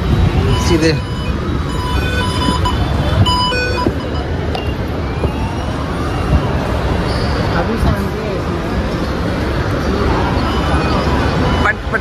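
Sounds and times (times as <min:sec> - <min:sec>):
short electronic beeps: 0:00.4 - 0:06.2, 0:10.3 - 0:12.0.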